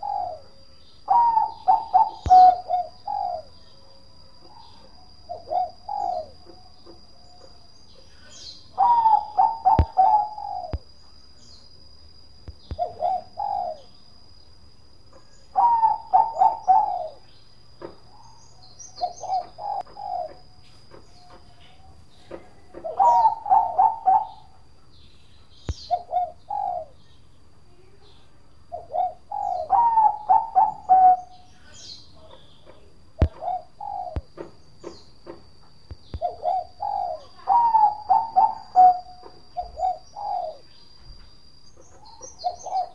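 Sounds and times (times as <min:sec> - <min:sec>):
dove cooing: 0:00.0 - 0:03.6, 0:04.4 - 0:07.6, 0:08.7 - 0:10.9, 0:12.7 - 0:13.9, 0:15.1 - 0:17.2, 0:19.0 - 0:24.6, 0:25.7 - 0:27.0, 0:28.7 - 0:35.0, 0:36.1 - 0:40.7, 0:41.8 - 0:42.9.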